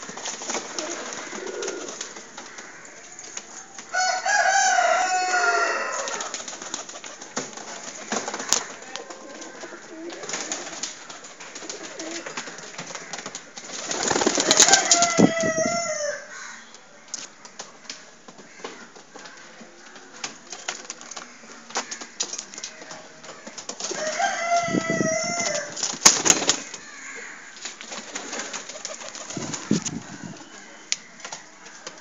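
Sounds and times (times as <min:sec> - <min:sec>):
pigeons cooing: 0:00.0 - 0:16.6, 0:18.4 - 0:32.0.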